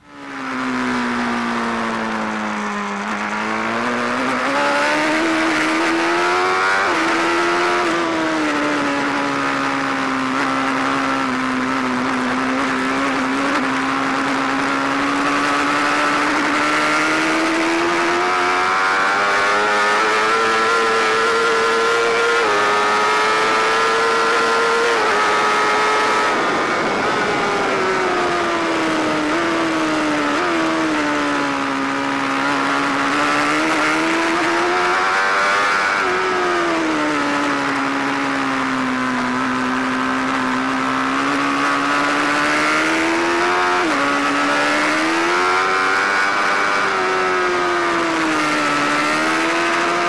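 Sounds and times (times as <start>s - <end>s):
motorcycle engine at speed: 0.0s - 50.0s
wind rush: 24.9s - 30.2s.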